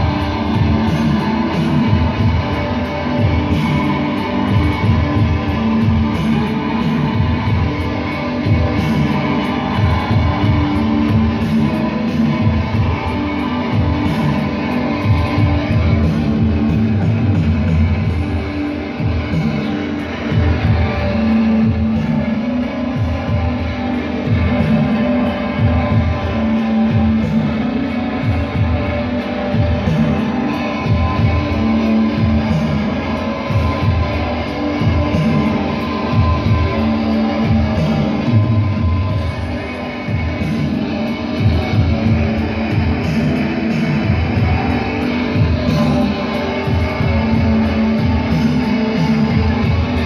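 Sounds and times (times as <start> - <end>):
loud electric guitar: 0.0 - 50.0.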